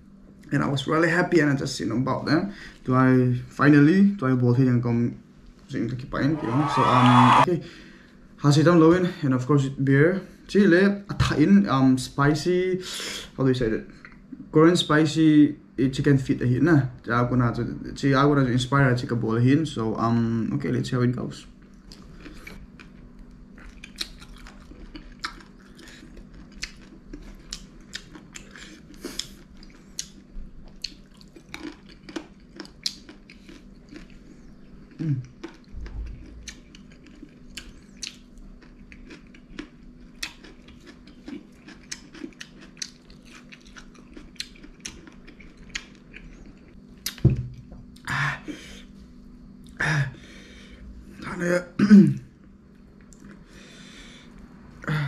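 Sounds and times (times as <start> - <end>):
person humming: 6.2 - 7.5
wet chewing and lip smacks: 21.6 - 47.2.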